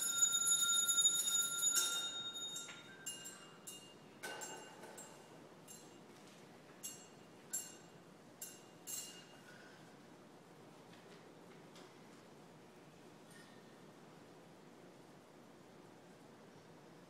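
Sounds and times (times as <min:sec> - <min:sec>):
small bells clinking: 0:00.0 - 0:06.0, 0:06.8 - 0:09.4.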